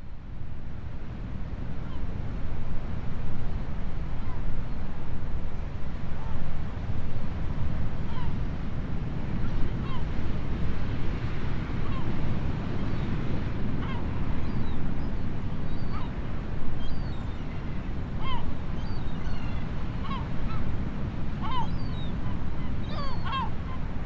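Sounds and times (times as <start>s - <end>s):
wind: 0.0s - 24.0s
gulls yelping: 22.8s - 23.5s.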